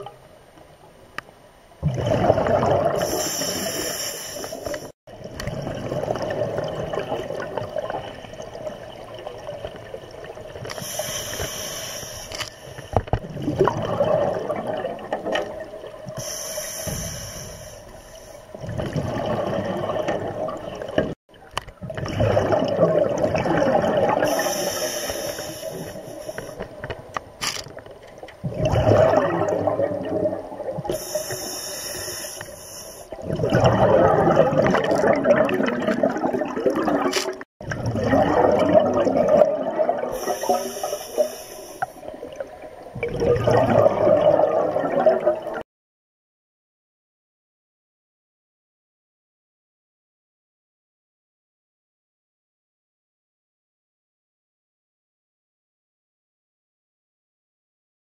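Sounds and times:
exhaled bubbles rushing: 0:01.8 - 0:03.9, 0:05.1 - 0:11.5, 0:13.2 - 0:16.2, 0:18.5 - 0:21.2, 0:21.8 - 0:24.7, 0:28.4 - 0:31.2, 0:33.1 - 0:41.4, 0:42.0 - 0:45.6
diver breathing through regulator: 0:03.0 - 0:04.9, 0:10.8 - 0:13.0, 0:16.2 - 0:18.4, 0:24.3 - 0:26.6, 0:30.9 - 0:33.2, 0:40.2 - 0:42.0.

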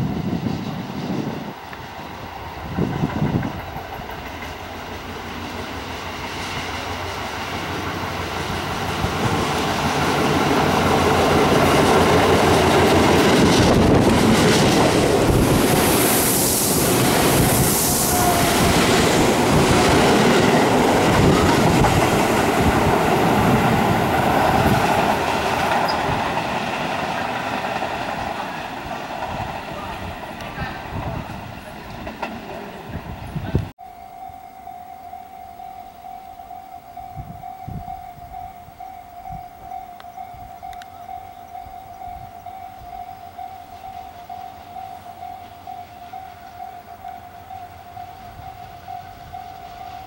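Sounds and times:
electric train passing: 0:00.0 - 0:50.0
wheels clacking over rail joints: 0:01.6 - 0:16.2, 0:18.2 - 0:33.7.

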